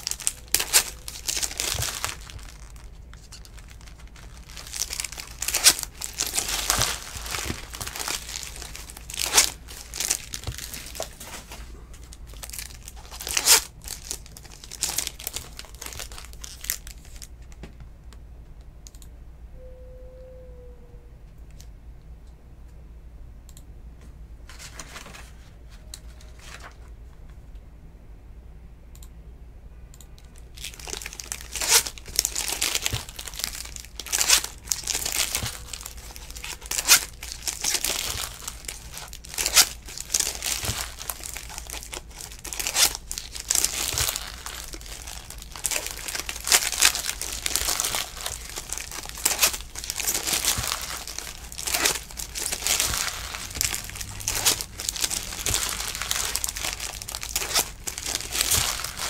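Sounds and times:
foil wrappers tearing and crinkling: 0:00.0 - 0:17.4, 0:30.4 - 0:59.0.

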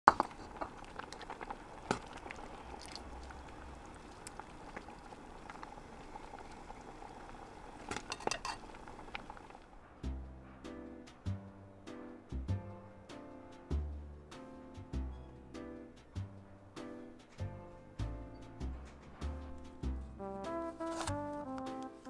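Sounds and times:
chowder bubbling in pot: 0:00.1 - 0:09.8
metal ladle clinking and scraping: 0:07.9 - 0:08.7.

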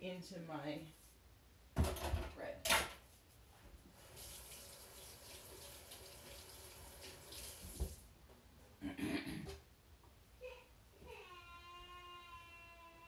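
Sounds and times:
faint faucet running into sink: 0:04.0 - 0:08.0.

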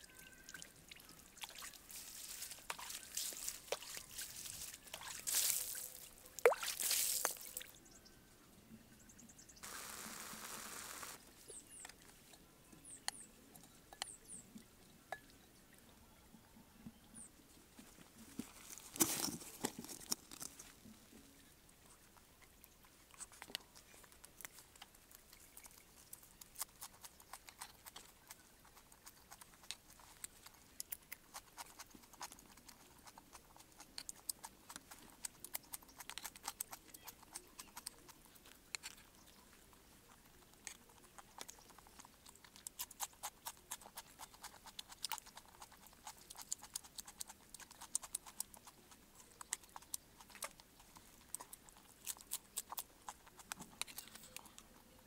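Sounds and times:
person chewing and crunching: 0:01.4 - 0:07.7, 0:23.0 - 0:54.8.

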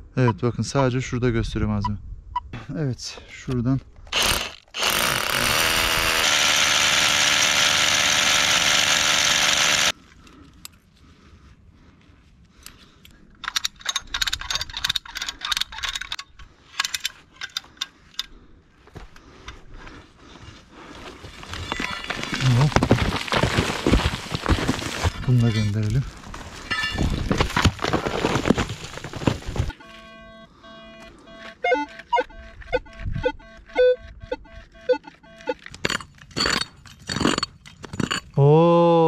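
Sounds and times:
small power tool motor running: 0:04.1 - 0:10.0
metal carabiners clinking: 0:13.4 - 0:18.4, 0:26.6 - 0:27.2.

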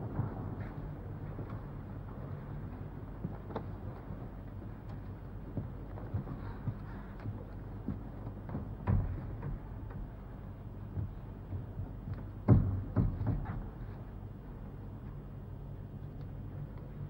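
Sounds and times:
steady low hum: 0:00.0 - 0:17.0
scattered knocks and clicks: 0:05.0 - 0:10.1, 0:10.9 - 0:13.9.

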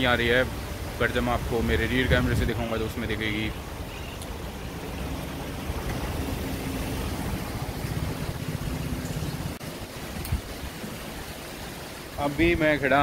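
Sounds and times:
flowing river water: 0:00.0 - 0:13.0
low motor hum: 0:03.6 - 0:09.6.

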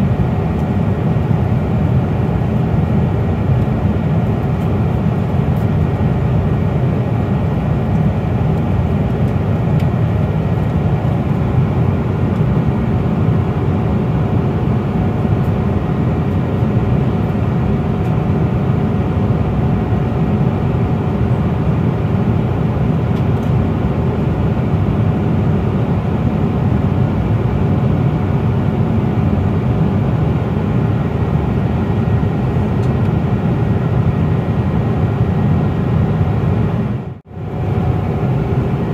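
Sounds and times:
airplane cabin roar: 0:00.0 - 0:38.9.

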